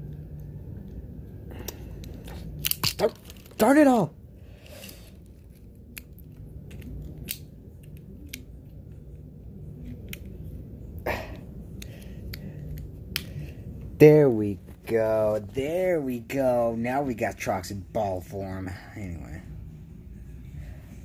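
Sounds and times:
plastic toy clicks and snaps: 2.0s - 3.6s, 5.9s - 8.8s.

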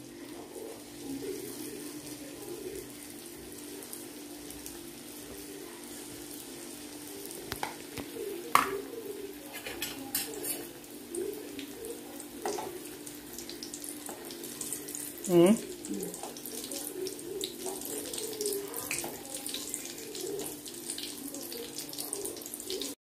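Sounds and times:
deep-frying sizzle: 0.0s - 23.0s
metal spoon clinking on pan: 9.5s - 10.7s.

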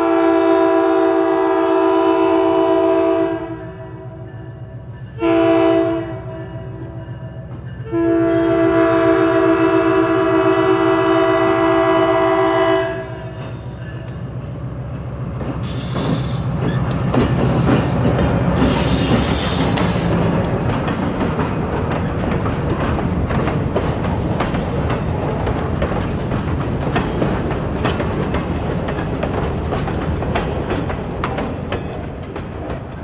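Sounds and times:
high wheel squeal: 13.2s - 14.5s, 15.6s - 20.3s
wheels clicking over rail joints: 13.4s - 33.0s.

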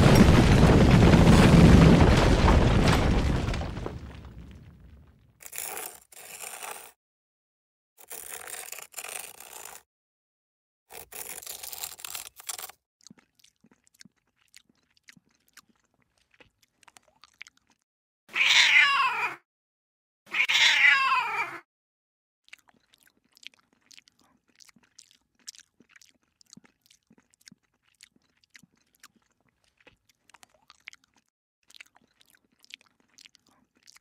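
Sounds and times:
paper tearing: 5.4s - 7.0s, 8.0s - 9.8s, 10.9s - 12.8s
cat meowing: 18.3s - 19.4s, 20.3s - 21.6s.

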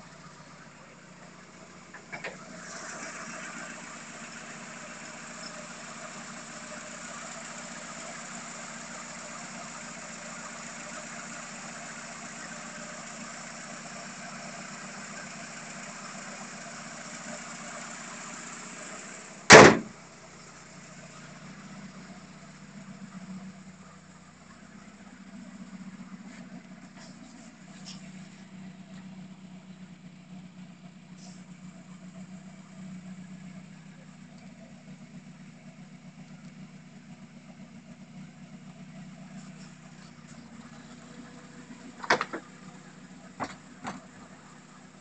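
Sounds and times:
car engine idling: 0.0s - 45.0s
car bonnet slamming: 19.5s - 20.0s, 42.0s - 42.5s.

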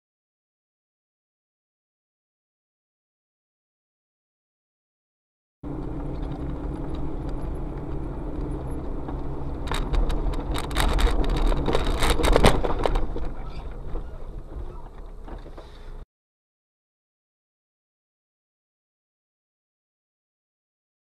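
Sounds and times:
car cabin drone: 5.6s - 16.0s
knocks and rattles: 5.8s - 15.7s.

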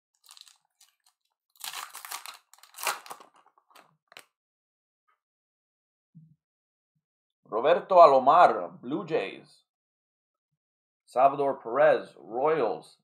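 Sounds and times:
wrapper crinkling: 0.2s - 4.2s
wrapper tearing: 0.2s - 4.3s.

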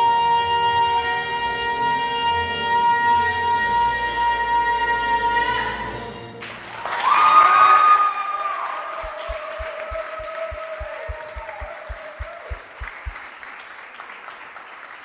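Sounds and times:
audience applauding: 6.4s - 15.0s
steady low thumps: 9.0s - 13.3s.

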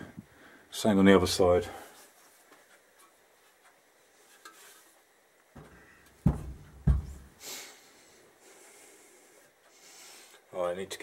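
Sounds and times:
heavy part knocking on workbench: 5.6s - 7.3s
soft bump: 5.6s - 7.4s.

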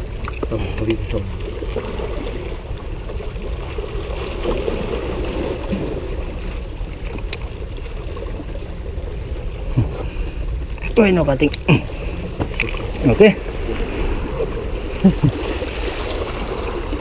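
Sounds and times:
sea water washing against rocks: 0.0s - 17.0s.

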